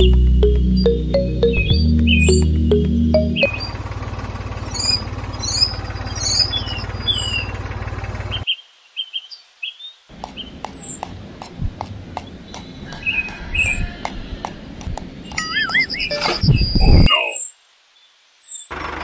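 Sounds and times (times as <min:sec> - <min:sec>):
birds chirping: 0:04.6 - 0:08.5, 0:10.2 - 0:17.1.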